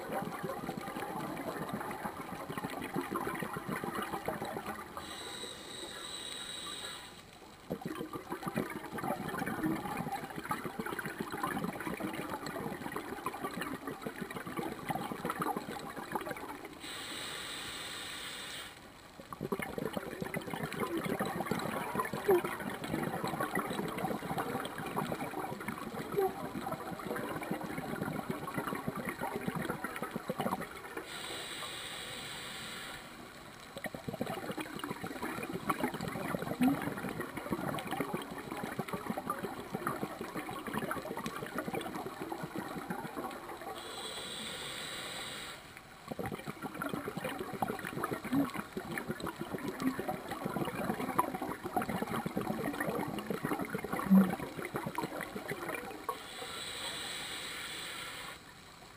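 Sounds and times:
underwater bubbles gurgling: 0.0 - 58.9
regulator inhalation hiss: 5.0 - 7.2, 16.8 - 18.8, 31.0 - 33.2, 43.8 - 45.8, 56.1 - 58.5.

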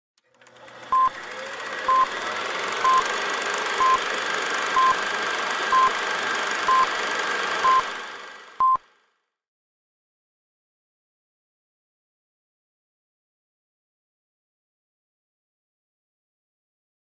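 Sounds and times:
short beeps: 7.6 - 7.8.

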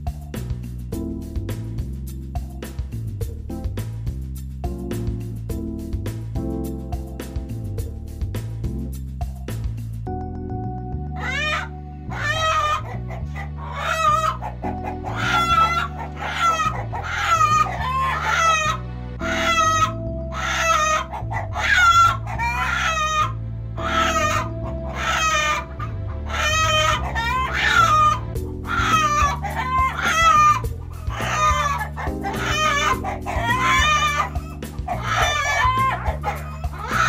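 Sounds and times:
stepping bass line: 0.0 - 10.8
chicken clucks and squawks: 11.2 - 37.0.

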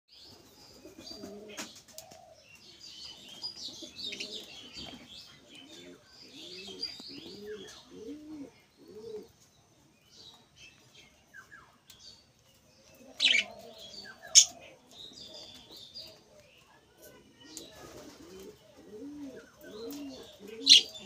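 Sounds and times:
pigeon cooing: 0.8 - 2.4, 3.7 - 9.4, 13.0 - 15.4, 17.4 - 21.0
budgerigars chirping and chattering: 10.2 - 18.2, 19.2 - 21.0.

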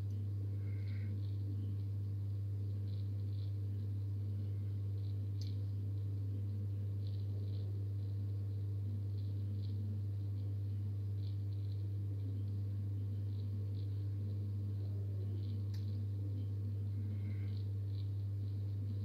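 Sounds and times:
aquarium pump humming: 0.0 - 19.0
faint water bubbling: 0.0 - 19.0
soft ticks: 5.0 - 5.6, 6.4 - 16.6.

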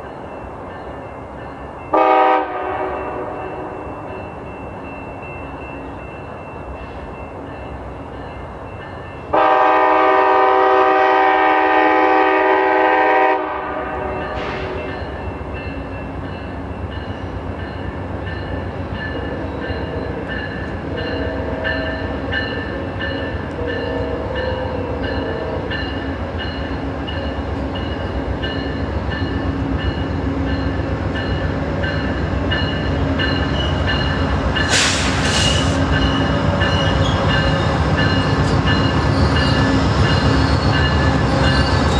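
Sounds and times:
train engine and wheel rumble: 0.0 - 41.9
locomotive horn blast: 1.9 - 3.7, 9.3 - 14.9
brief hiss: 34.7 - 35.8.

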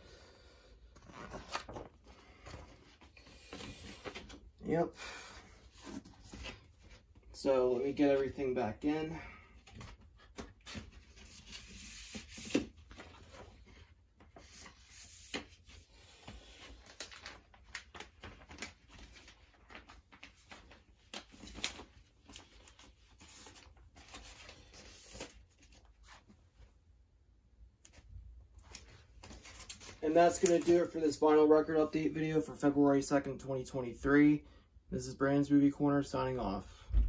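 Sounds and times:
paper and cardboard rustling: 9.6 - 26.4, 27.9 - 31.2.

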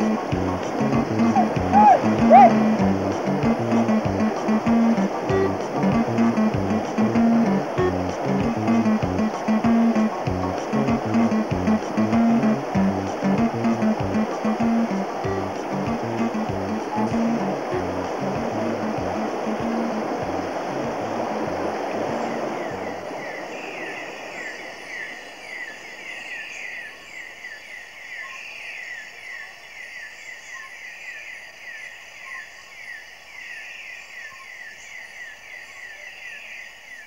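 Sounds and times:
rushing river water: 0.0 - 27.4
chorus of birds or insects: 21.8 - 37.0.

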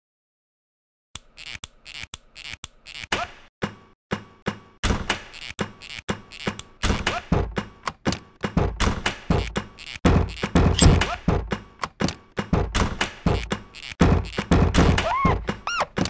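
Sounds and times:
percussive beat of clicks: 6.0 - 15.6.

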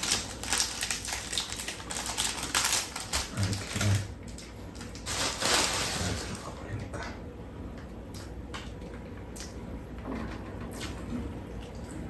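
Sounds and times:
plastic wrapper crinkling: 0.0 - 6.7.

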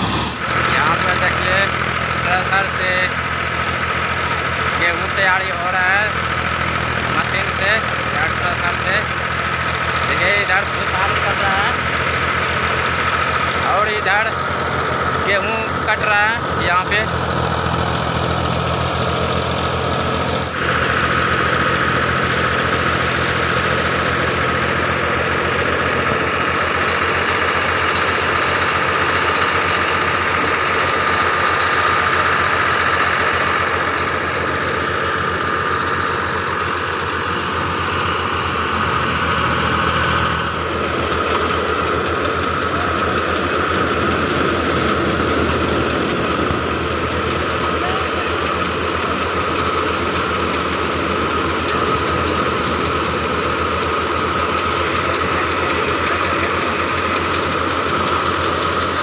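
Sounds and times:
engine rhythm: 0.0 - 59.0
threshing machine whirring: 0.0 - 59.0.

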